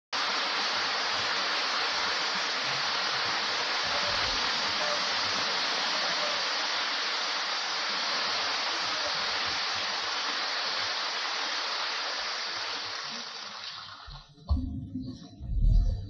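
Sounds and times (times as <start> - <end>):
low thump: 14.4 - 16.0.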